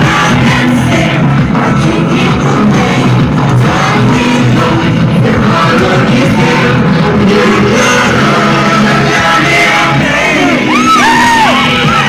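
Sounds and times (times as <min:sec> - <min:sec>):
children and young people singing: 0:00.0 - 0:12.0
loud music: 0:00.0 - 0:12.0.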